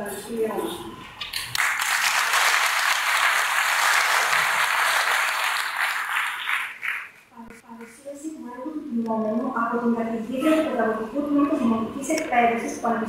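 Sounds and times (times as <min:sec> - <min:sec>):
audience applauding: 0:01.3 - 0:07.2.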